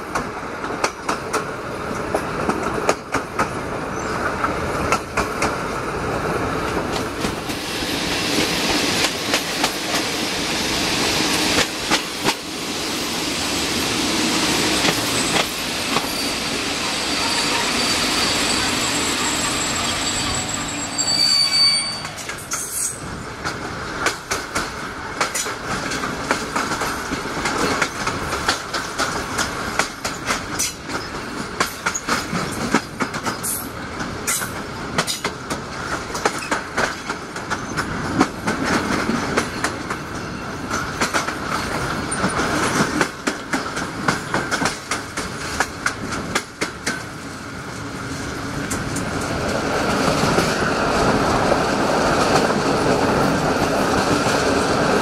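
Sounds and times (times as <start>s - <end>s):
train wheels rushing on rails: 0.0s - 55.0s
wheels clacking over rail joints: 14.5s - 16.3s, 23.4s - 47.2s
high wheel squeal: 14.6s - 23.0s.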